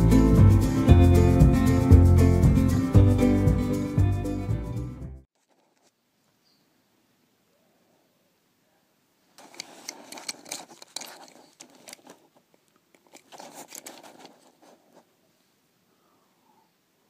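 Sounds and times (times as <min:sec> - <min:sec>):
toy truck wheels rolling: 0:09.4 - 0:14.9.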